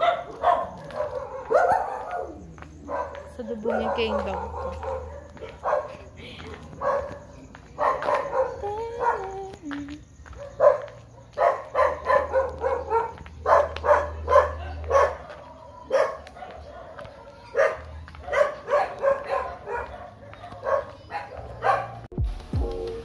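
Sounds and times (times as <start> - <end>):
dog barking: 0.0 - 9.4, 10.3 - 22.1.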